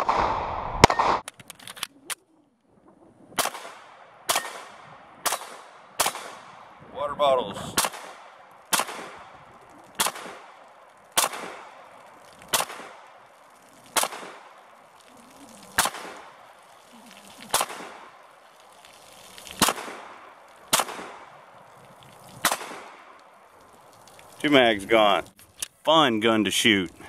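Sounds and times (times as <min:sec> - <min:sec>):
pistol shots with echo: 0:03.4 - 0:06.6, 0:07.8 - 0:09.3, 0:10.0 - 0:10.6, 0:11.2 - 0:11.8, 0:12.5 - 0:13.0, 0:14.0 - 0:14.4, 0:15.8 - 0:16.2, 0:20.7 - 0:21.3, 0:22.4 - 0:23.0.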